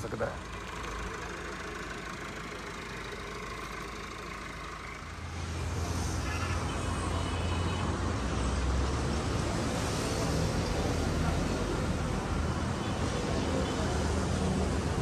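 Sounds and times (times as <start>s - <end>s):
tractor diesel engine rumbling: 0.0s - 7.6s.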